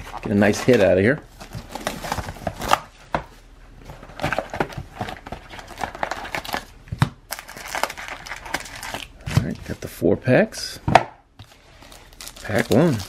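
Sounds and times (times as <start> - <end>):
cardboard rustling: 0.0 - 6.7
foil wrappers crinkling: 7.3 - 9.8, 11.4 - 13.0.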